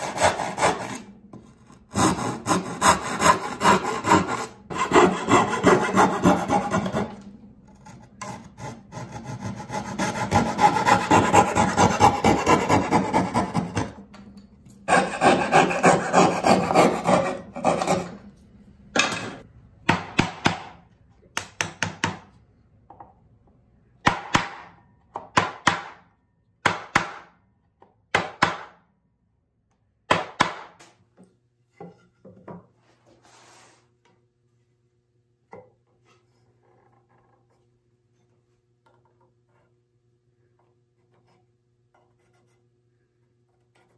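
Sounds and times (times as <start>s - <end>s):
chisel cutting wood: 0.0s - 1.1s, 1.9s - 7.2s, 7.8s - 14.0s, 14.9s - 18.2s
coping saw cutting wood: 0.0s - 1.1s, 1.9s - 7.1s, 8.2s - 13.8s, 14.9s - 18.2s.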